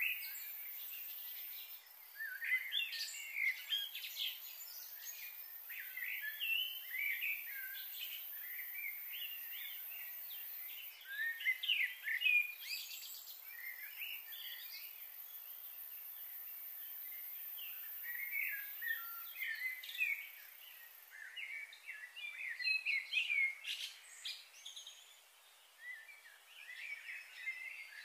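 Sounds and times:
steady high hiss: 0:00.0 - 0:21.6
birds chirping: 0:00.0 - 0:28.0.

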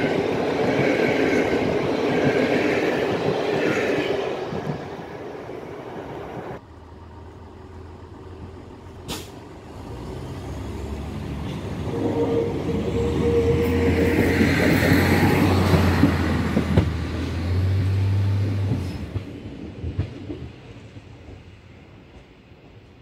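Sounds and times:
wheels rumbling on rails: 0:00.0 - 0:22.9
diesel railcar engine drone: 0:05.4 - 0:19.8.

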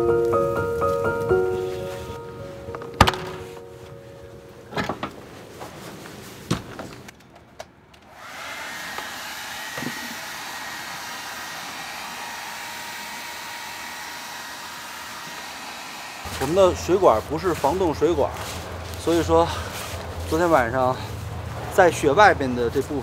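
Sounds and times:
hair dryer running: 0:08.1 - 0:17.0.

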